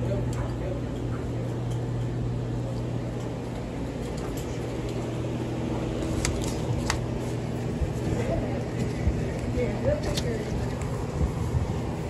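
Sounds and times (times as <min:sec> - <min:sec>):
low electrical hum of coolers: 0:00.0 - 0:12.0.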